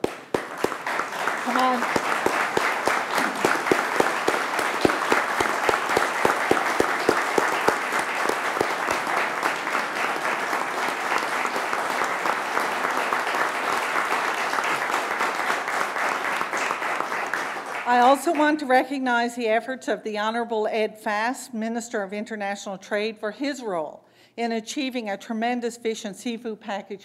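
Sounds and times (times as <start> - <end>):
crowd applauding: 0.0 - 18.4
loud claps near microphone: 0.0 - 18.6.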